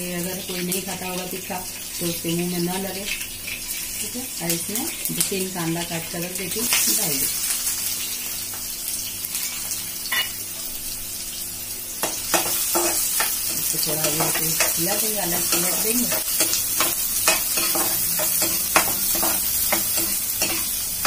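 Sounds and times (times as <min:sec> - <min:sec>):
onions sizzling in hot oil: 0:00.0 - 0:21.0
metal spatula scraping pan: 0:12.3 - 0:20.8.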